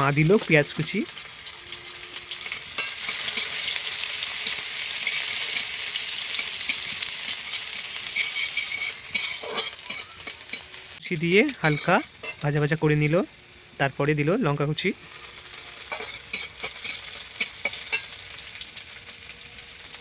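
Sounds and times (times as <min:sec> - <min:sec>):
onion sizzling in oil: 0:00.0 - 0:20.0
metal spatula scraping pan: 0:01.4 - 0:12.4, 0:15.8 - 0:18.2.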